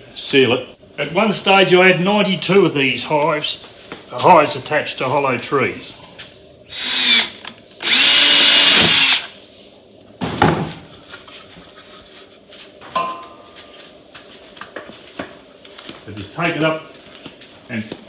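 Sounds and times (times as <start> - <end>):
cordless drill running: 6.7 - 9.3.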